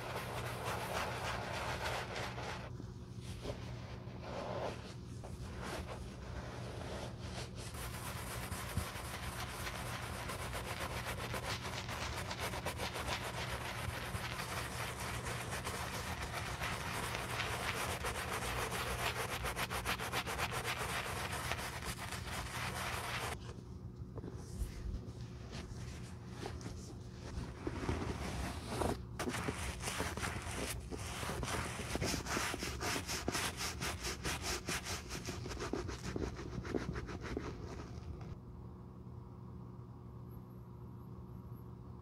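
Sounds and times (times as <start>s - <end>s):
brush scrubbing leather boots: 0.0s - 2.7s, 3.5s - 23.4s, 27.5s - 38.0s
towel rubbing leather boots: 0.0s - 2.7s, 3.3s - 23.4s, 24.4s - 38.4s.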